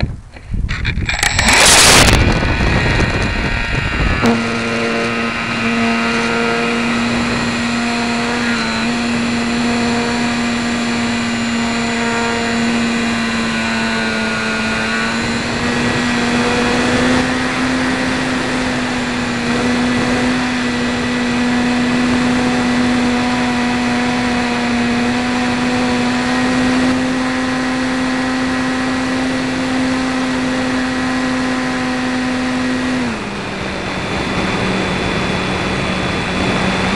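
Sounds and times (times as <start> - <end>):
rush of noise: 0.0 - 11.6
electric motor and propeller whine: 0.0 - 36.9.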